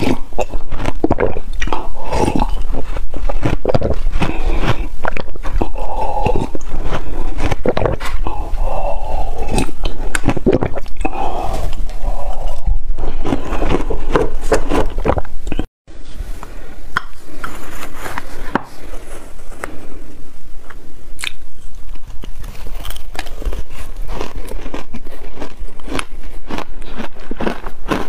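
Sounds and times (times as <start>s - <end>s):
crunching and chewing ice: 0.0s - 15.7s, 21.2s - 28.0s.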